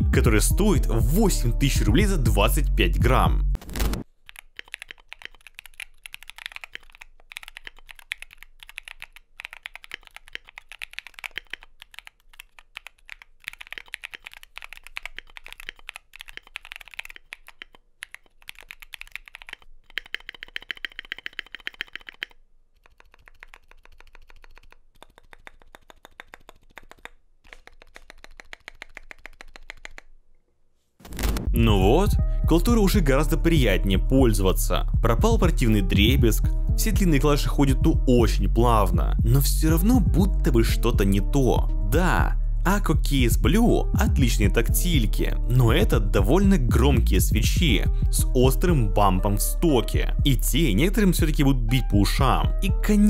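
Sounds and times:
keyboard keystroke clacks: 0:04.3 - 0:30.1.

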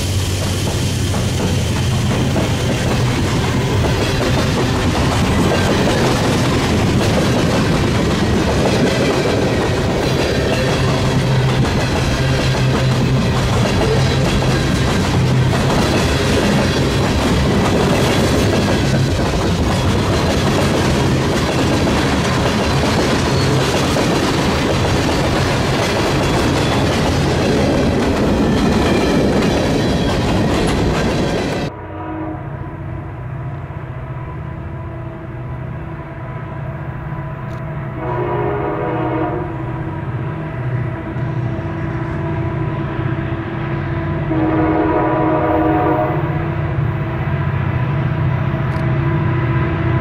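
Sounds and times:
train wheels clattering on rails: 0:00.0 - 0:31.7
distant locomotive horn: 0:31.6 - 0:40.3, 0:41.0 - 0:47.1.

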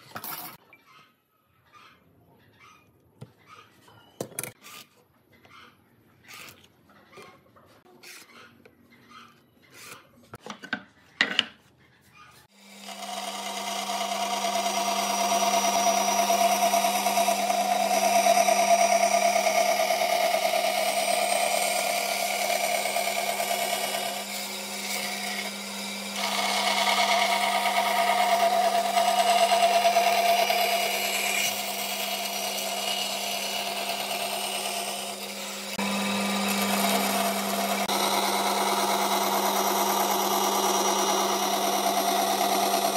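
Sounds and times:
bandsaw cutting wooden board: 0:12.5 - 0:42.9.

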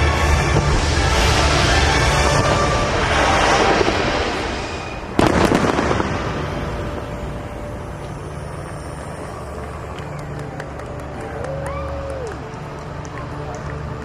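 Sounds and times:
dense rumble: 0:00.0 - 0:10.4
sharp bang: 0:02.4 - 0:08.0.

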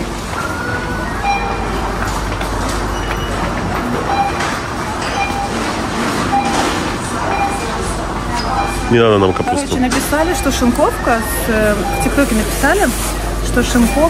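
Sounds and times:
short electronic beeps: 0:04.1 - 0:05.7, 0:06.3 - 0:07.8, 0:08.4 - 0:12.6, 0:13.6 - 0:14.0
shopping trolley rattling: 0:09.9 - 0:14.0.

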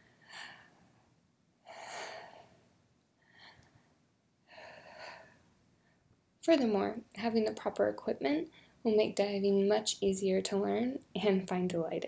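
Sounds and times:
woman breathing deeply: 0:00.0 - 0:06.1.

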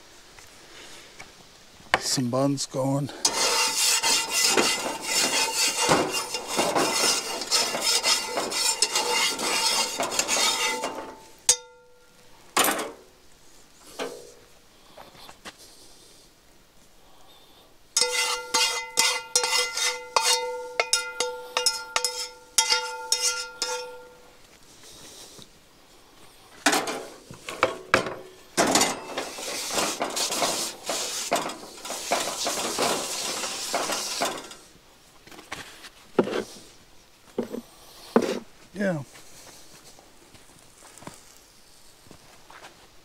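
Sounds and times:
metal scraping and rattling: 0:03.2 - 0:11.7, 0:18.0 - 0:24.2, 0:26.6 - 0:34.8
metal cookware clinking: 0:03.2 - 0:12.0, 0:18.0 - 0:24.2.

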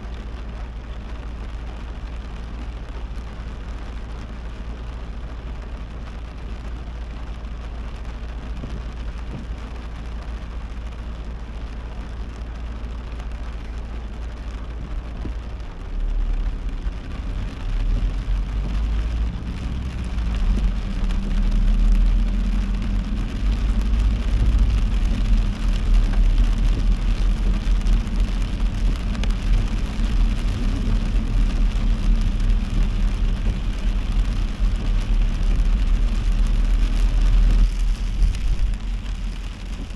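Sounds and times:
car road and engine noise: 0:00.0 - 0:39.9
heavy rain on a car: 0:00.0 - 0:39.9.

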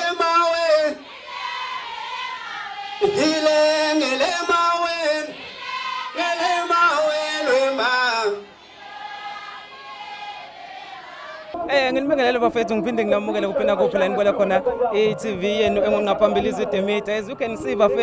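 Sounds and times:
man singing into a microphone: 0:06.2 - 0:08.4.

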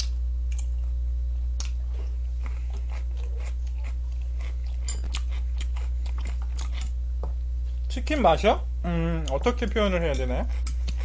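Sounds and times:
person chewing crunchy food: 0:00.0 - 0:07.1, 0:10.4 - 0:11.0
low electrical hum: 0:00.0 - 0:11.0.

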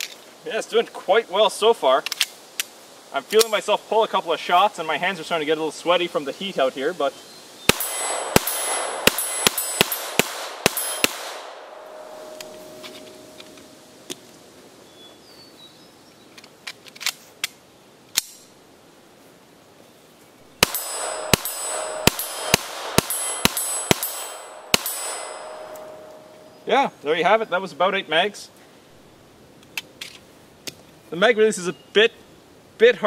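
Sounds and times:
pistol shots: 0:07.7 - 0:13.3, 0:20.6 - 0:26.4
pistol handling clicks: 0:12.3 - 0:14.2.

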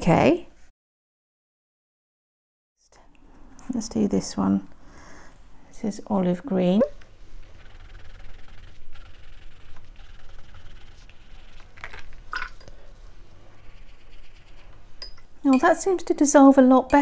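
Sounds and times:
pencil scratching on paper: 0:07.5 - 0:11.8, 0:13.6 - 0:14.8.

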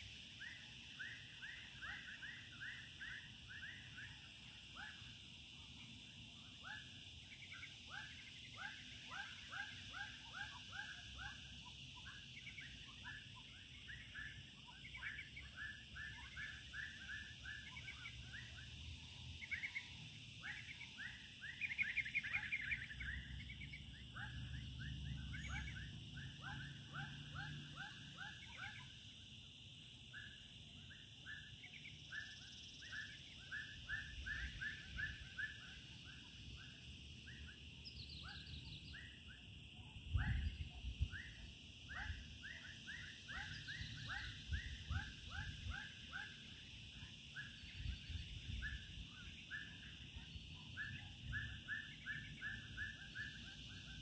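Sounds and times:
animals chirping: 0:19.4 - 0:28.9, 0:41.2 - 0:46.6.

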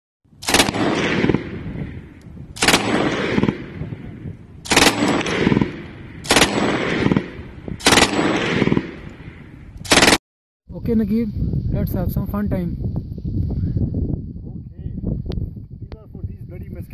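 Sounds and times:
rolling gunfire echo: 0:00.4 - 0:10.2
machine gun bursts: 0:04.7 - 0:05.6, 0:06.2 - 0:07.2, 0:07.8 - 0:08.7, 0:09.9 - 0:10.2.

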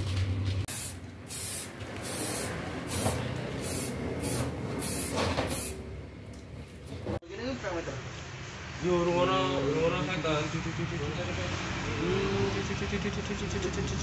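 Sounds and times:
spray paint can hissing: 0:00.7 - 0:05.8.

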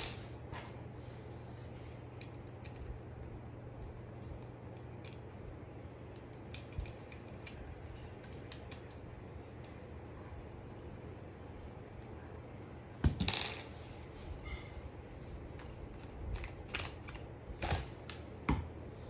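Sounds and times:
steady low hum: 0:00.0 - 0:19.0
metal frame parts clicking: 0:06.1 - 0:09.0.

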